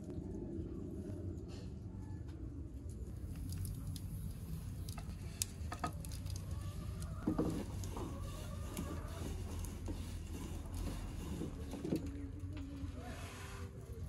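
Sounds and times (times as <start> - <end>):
wood fire crackling: 2.9 - 14.0
rolling pin rolling dough: 5.8 - 14.0.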